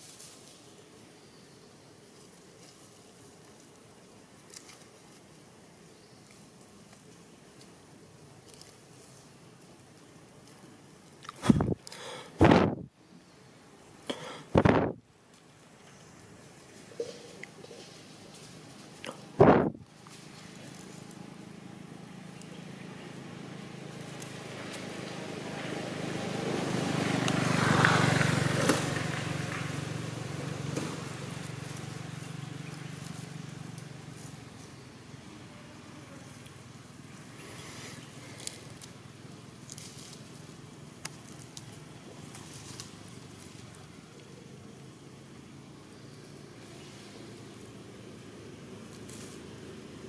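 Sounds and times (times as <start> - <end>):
motor vehicle passing by: 15.8 - 50.0.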